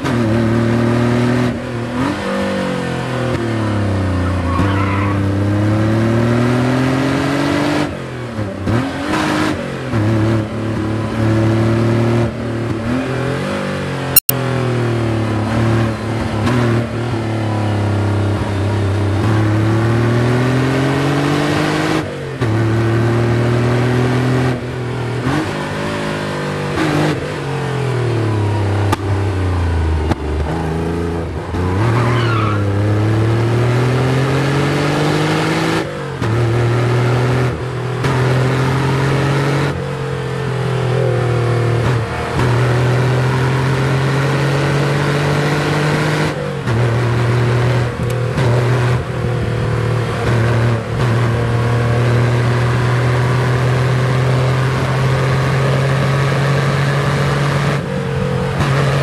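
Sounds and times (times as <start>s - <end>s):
car engine revving hard: 0.0s - 59.0s
high wavering squeal: 4.2s - 5.3s, 31.6s - 32.7s.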